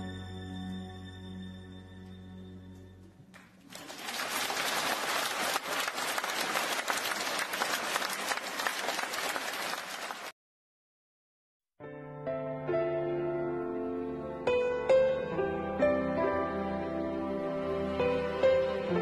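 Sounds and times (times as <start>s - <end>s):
crowd applauding: 3.3s - 10.4s.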